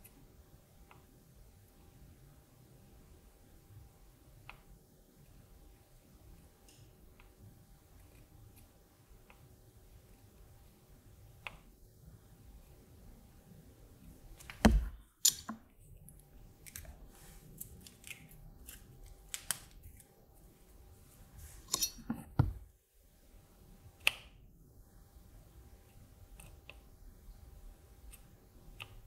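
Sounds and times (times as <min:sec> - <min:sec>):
loud knocks: 0:14.6 - 0:15.0.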